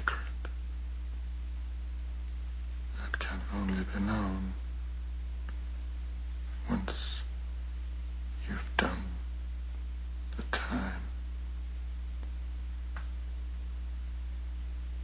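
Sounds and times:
low hum with faint hiss: 0.0s - 15.0s.

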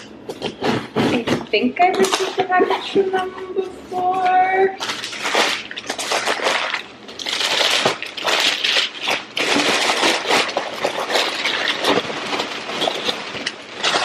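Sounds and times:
tissue paper crinkling: 4.8s - 14.0s.

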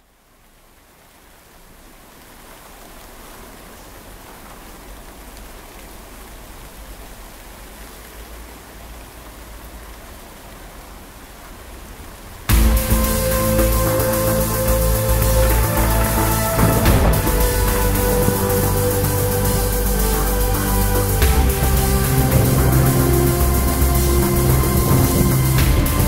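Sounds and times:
rain-like electronic noise texture: 0.0s - 26.0s
low rumble: 12.5s - 26.0s.

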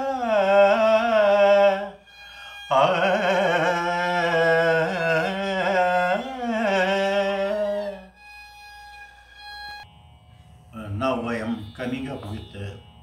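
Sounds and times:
man singing: 0.0s - 2.0s, 2.7s - 8.1s.

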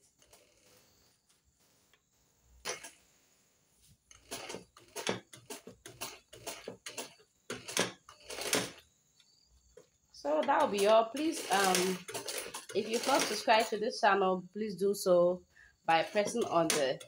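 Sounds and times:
sewing machine clicks: 2.6s - 3.0s, 4.1s - 8.8s, 10.2s - 13.8s, 15.9s - 17.0s.

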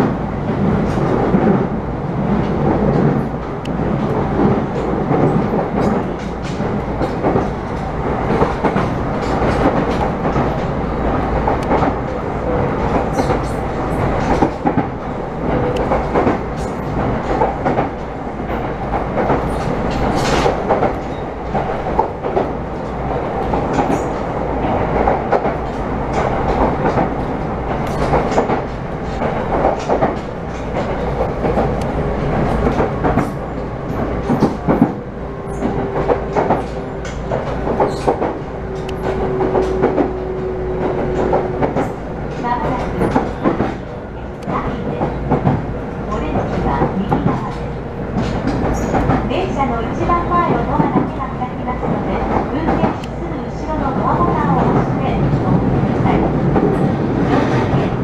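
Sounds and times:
train wheels on rail: 0.0s - 58.0s
clicks and clacks over track: 12.8s - 33.4s, 35.6s - 40.2s, 40.9s - 54.9s.

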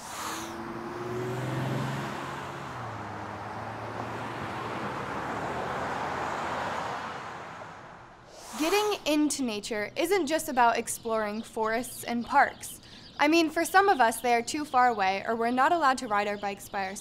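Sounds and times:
cars driving through intersection: 0.0s - 8.2s
engine hum: 0.0s - 8.3s.

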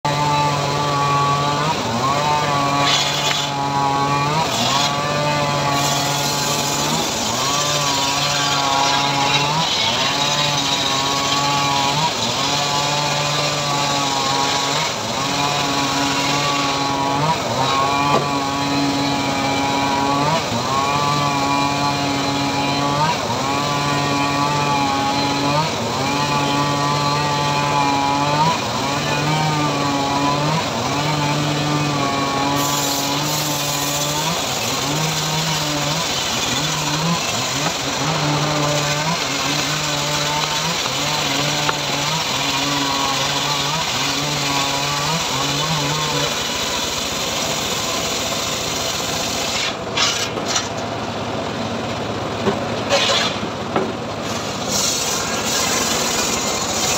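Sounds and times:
sawmill ripping a log: 0.0s - 56.9s.

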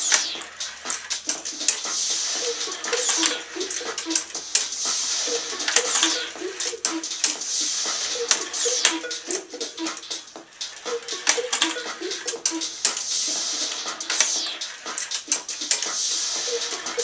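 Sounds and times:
sharp clicks of balls: 0.0s - 7.5s, 8.1s - 17.0s
balls rolling on plastic track: 0.0s - 17.0s.

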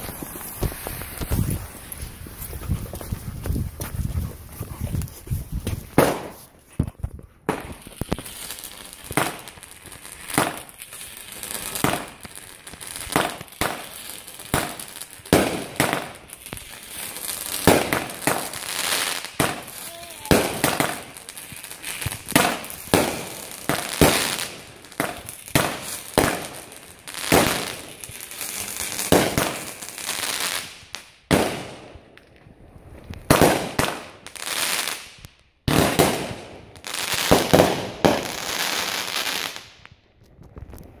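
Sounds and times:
crackling firework tails hissing: 0.0s - 41.0s
firework shots banging: 5.9s - 6.4s.

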